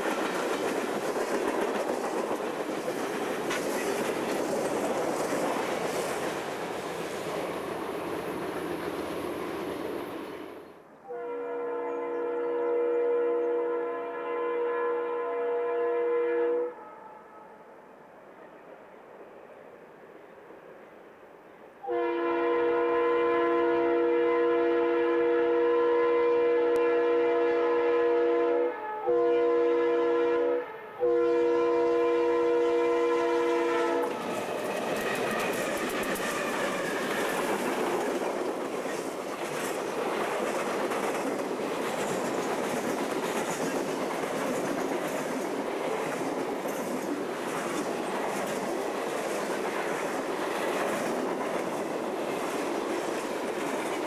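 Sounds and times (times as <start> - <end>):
wheels clacking on rail joints: 0.0 - 10.2, 34.0 - 54.0
freight train rolling past: 0.0 - 54.0
locomotive air horn blasts: 11.0 - 17.7, 21.8 - 34.6.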